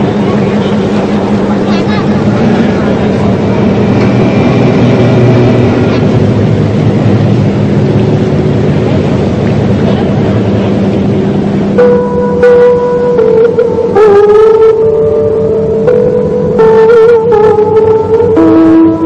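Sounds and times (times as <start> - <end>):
rushing water: 0.0 - 15.9
boat engine humming: 0.0 - 19.0.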